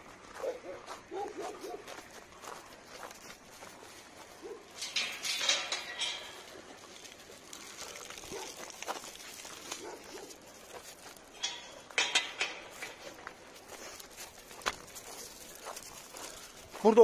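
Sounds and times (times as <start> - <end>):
footsteps scuffing on dry dirt: 0.0 - 17.0
faint dog sounds: 0.3 - 2.0, 7.7 - 8.8.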